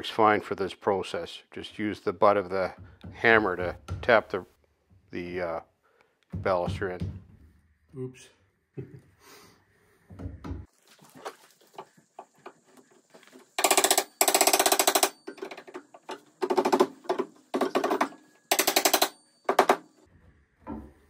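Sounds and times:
rattling mechanical impacts: 0:13.6 - 0:20.1.

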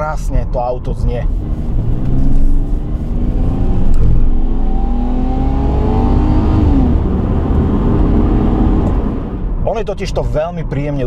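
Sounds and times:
car engine accelerating: 0:01.3 - 0:09.6.

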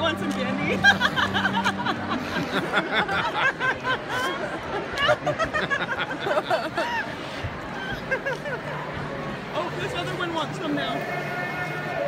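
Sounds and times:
crowd chatter: 0:00.0 - 0:12.0
laughter: 0:00.7 - 0:07.2, 0:07.8 - 0:08.8.

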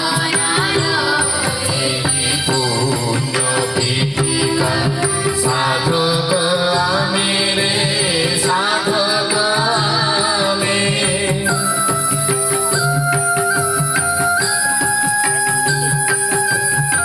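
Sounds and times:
held musical accompaniment: 0:00.0 - 0:17.0
children singing over loudspeaker: 0:03.4 - 0:11.2.

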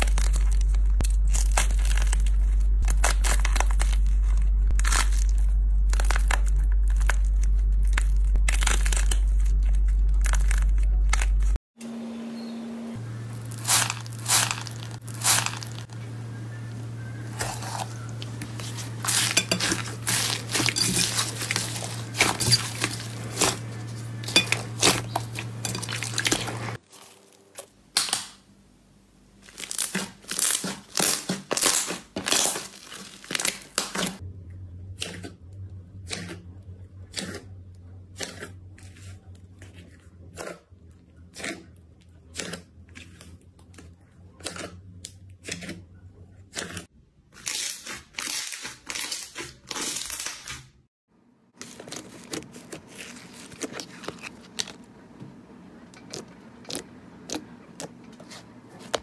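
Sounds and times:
slime crackling and squelching: 0:00.0 - 0:11.6, 0:13.3 - 0:16.0, 0:17.2 - 0:28.2, 0:29.4 - 0:34.2, 0:46.5 - 0:50.6, 0:51.6 - 0:55.0
low steady hum: 0:00.0 - 0:47.2, 0:51.1 - 0:59.0.

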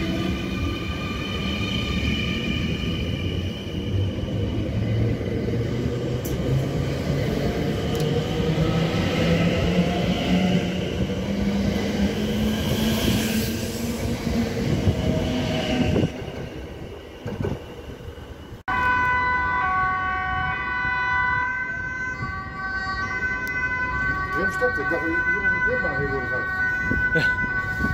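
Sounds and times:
wheels rumbling on rails: 0:00.0 - 0:19.1.

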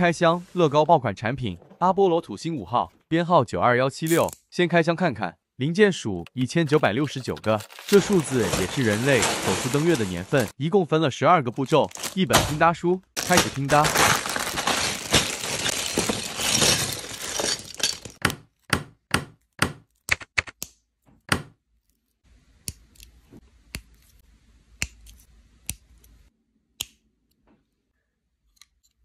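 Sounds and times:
plastic bag crinkling: 0:06.8 - 0:10.5, 0:11.6 - 0:12.6, 0:13.2 - 0:18.2.

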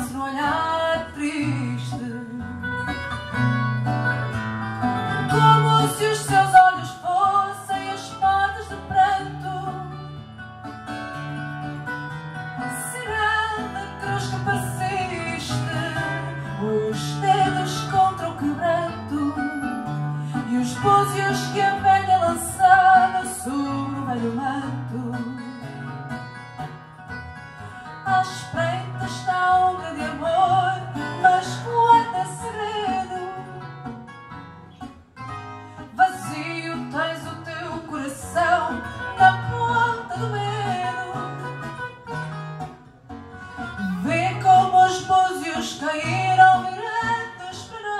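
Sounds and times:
woman singing into microphone: 0:00.0 - 0:02.9, 0:05.2 - 0:10.2, 0:12.6 - 0:25.9, 0:28.0 - 0:33.8, 0:35.8 - 0:41.9, 0:43.7 - 0:47.9
plucked acoustic guitar: 0:00.0 - 0:47.9.

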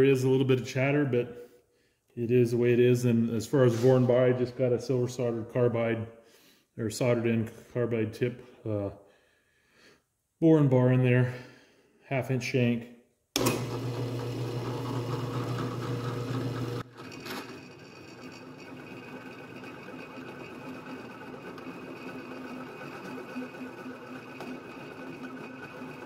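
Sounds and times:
drill press boring steel: 0:13.4 - 0:26.0
drill press chatter: 0:13.4 - 0:26.0.

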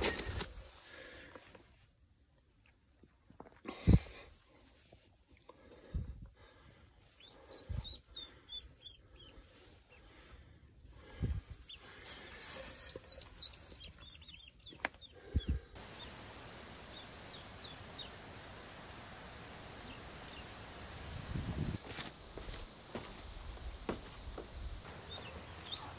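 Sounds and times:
hands rustling in straw: 0:00.0 - 0:01.8, 0:07.0 - 0:15.4
ducklings peeping: 0:07.1 - 0:10.4, 0:11.2 - 0:16.2, 0:16.8 - 0:18.2, 0:24.9 - 0:25.9
steady hiss: 0:11.0 - 0:25.9.

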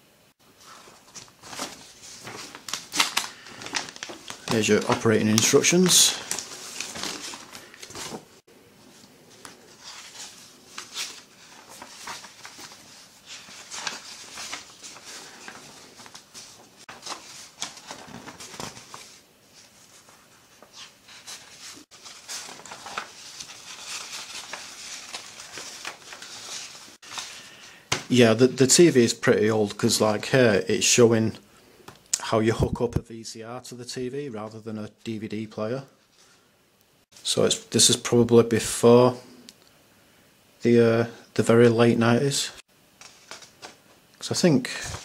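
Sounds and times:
pages rustling: 0:00.5 - 0:28.4, 0:42.9 - 0:45.0
plastic bag crinkling: 0:01.0 - 0:08.4, 0:09.4 - 0:19.2.

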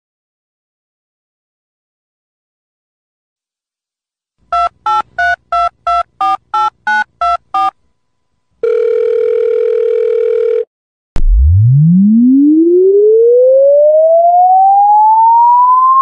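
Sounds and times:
steady telephone tone: 0:04.5 - 0:07.8, 0:08.6 - 0:10.7
touch-tone dialing beeps: 0:04.5 - 0:07.8.

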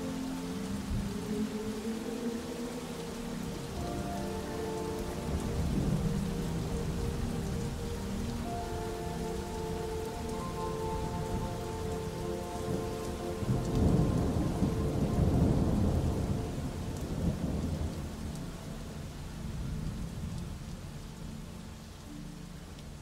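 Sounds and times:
steady rain: 0:00.0 - 0:23.0
rolling thunder: 0:12.6 - 0:18.4.

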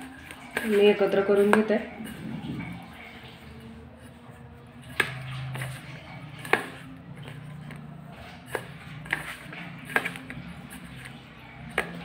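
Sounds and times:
hand mixing powder in steel bowl: 0:00.0 - 0:12.0.

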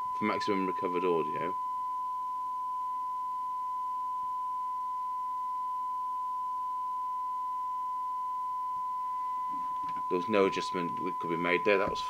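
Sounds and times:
steady test tone: 0:00.0 - 0:12.0.

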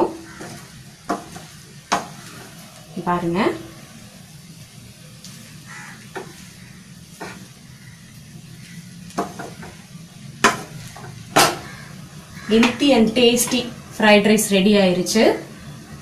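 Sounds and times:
spatula scraping frying pan: 0:00.0 - 0:02.7, 0:05.4 - 0:12.8
faint sizzle: 0:00.0 - 0:16.0.

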